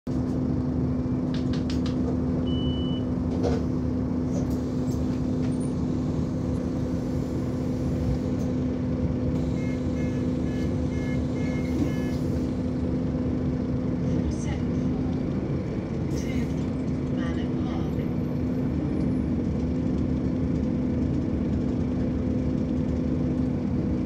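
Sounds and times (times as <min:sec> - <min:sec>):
bus diesel engine humming: 0:00.1 - 0:24.0
short electronic beeps: 0:02.5 - 0:03.1, 0:09.5 - 0:12.3.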